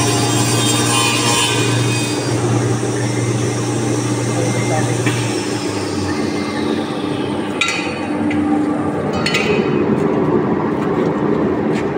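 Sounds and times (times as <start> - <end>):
wood router humming: 0.0 - 7.6.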